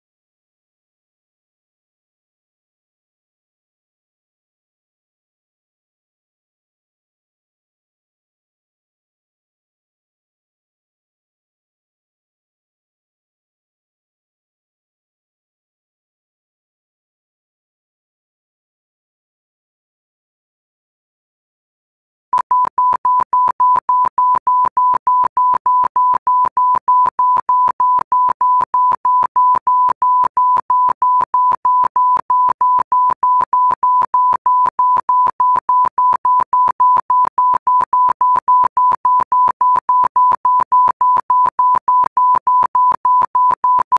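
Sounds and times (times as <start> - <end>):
rapid electronic warning beeps: 22.4 - 43.9.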